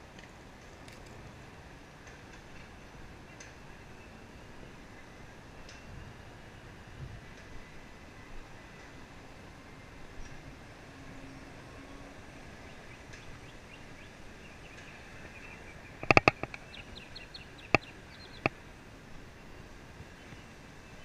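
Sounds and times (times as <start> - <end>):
bird chirping: 12.7 - 18.5.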